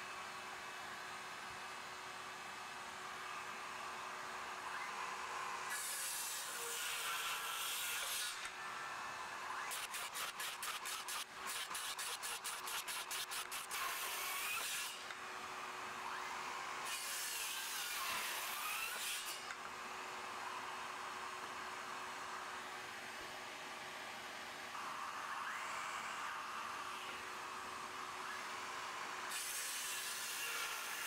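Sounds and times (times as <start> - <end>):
circular saw cutting wood: 5.6 - 19.6, 24.8 - 31.0.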